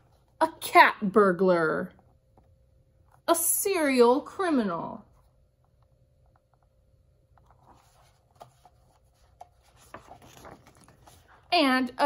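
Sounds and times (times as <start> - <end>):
book pages turning: 5.2 - 11.5.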